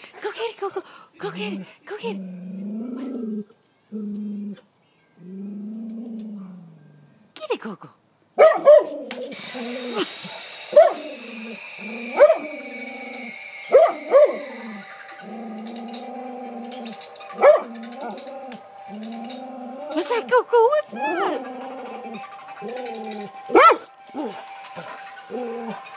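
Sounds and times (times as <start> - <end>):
dog barking: 8.4 - 9.0, 10.7 - 11.0, 12.2 - 12.5, 17.4 - 17.8, 23.5 - 23.9.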